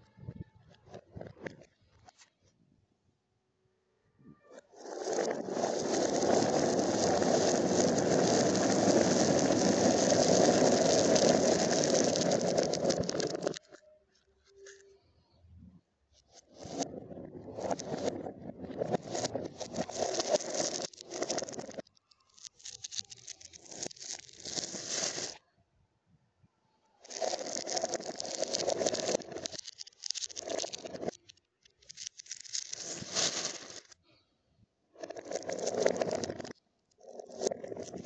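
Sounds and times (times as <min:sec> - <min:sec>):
glass marbles rattling on cardboard: 0:04.6 - 0:13.8, 0:16.3 - 0:25.4, 0:27.0 - 0:34.0, 0:35.0 - 0:38.0.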